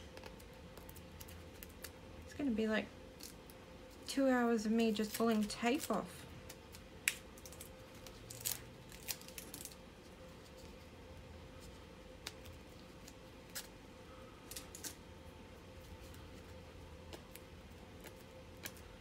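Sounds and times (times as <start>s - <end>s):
tape peeling crackles: 0.0s - 2.1s, 4.9s - 10.9s, 11.6s - 13.8s, 14.4s - 15.0s, 15.8s - 19.0s
faint steady hum: 0.0s - 19.0s.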